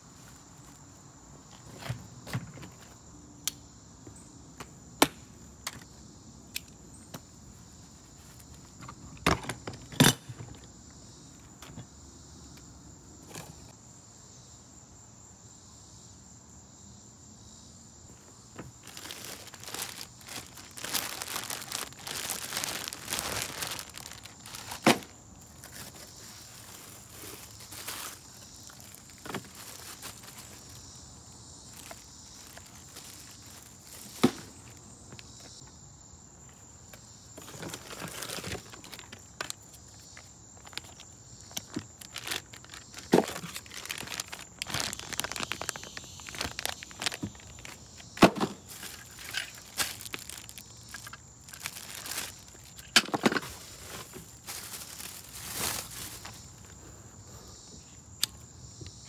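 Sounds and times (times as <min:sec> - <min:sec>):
high insect drone: 0:00.0 - 0:59.0
crinkling plastic bags and paper: 0:18.6 - 0:30.8, 0:31.6 - 0:34.8, 0:37.4 - 0:56.8.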